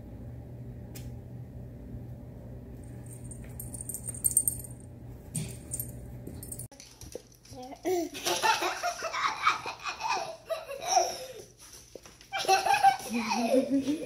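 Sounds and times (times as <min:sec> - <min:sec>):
steady low hum: 0:00.0 - 0:06.7
metal collar tags jingling: 0:03.0 - 0:04.8, 0:05.4 - 0:06.7.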